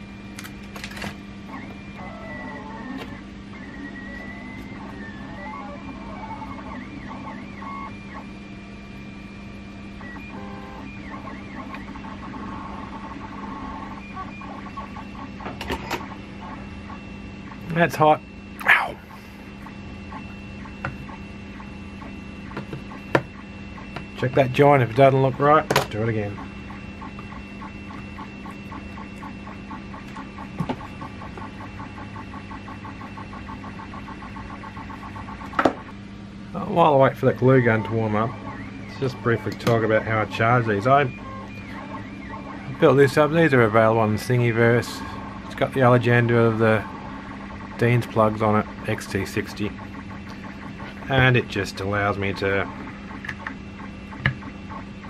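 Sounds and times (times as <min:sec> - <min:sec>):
constant low hum: 0:00.0 - 0:55.0
hot-air gun fan whir: 0:00.0 - 0:55.0
small electric motors whining: 0:00.4 - 0:08.2.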